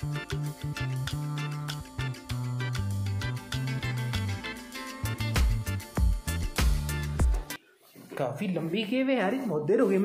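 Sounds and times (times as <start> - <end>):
music with bass and steady beat: 0.0 - 7.6.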